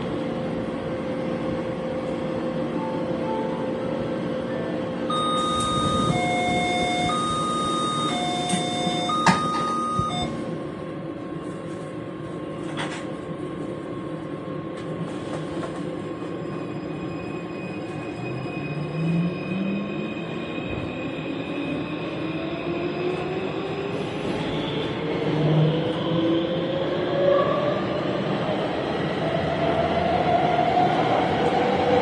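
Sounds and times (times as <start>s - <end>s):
train carriage rumbling: 0.0s - 32.0s
electronic two-tone chime: 5.1s - 10.4s.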